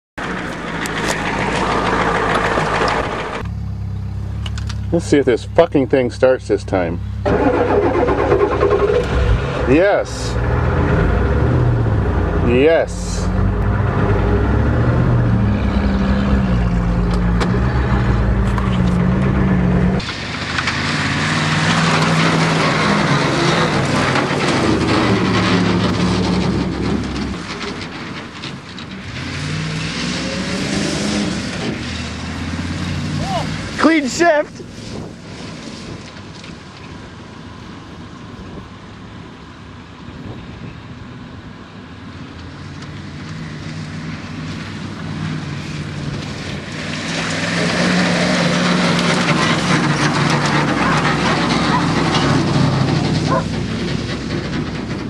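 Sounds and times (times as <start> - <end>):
truck engine revving hard: 0.2 - 3.5, 6.5 - 36.0, 43.9 - 55.0
wheels churning dirt: 0.2 - 3.6, 4.2 - 37.0, 42.3 - 55.0
spinning wheels spattering mud: 20.0 - 29.4.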